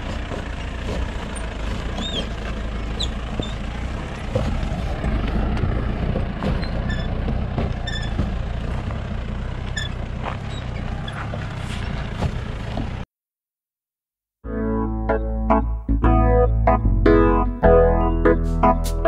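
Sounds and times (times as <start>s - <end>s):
car engine running: 0.0s - 13.0s
stones crunching under tyres: 0.0s - 13.0s.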